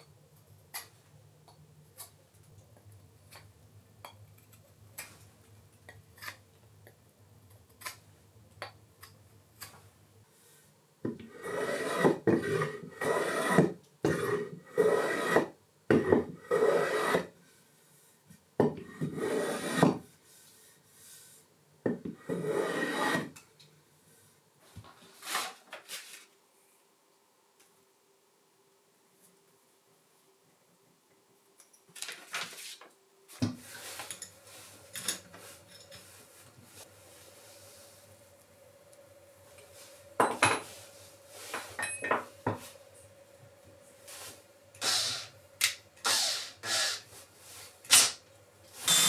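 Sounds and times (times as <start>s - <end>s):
hand plane shaving wood: 11.3s - 15.5s, 16.5s - 17.3s, 19.0s - 20.0s, 22.3s - 23.3s.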